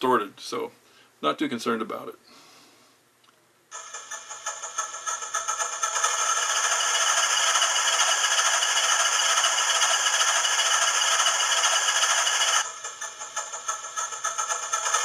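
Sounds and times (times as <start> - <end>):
loud steady mechanical noise: 3.7 - 15.0.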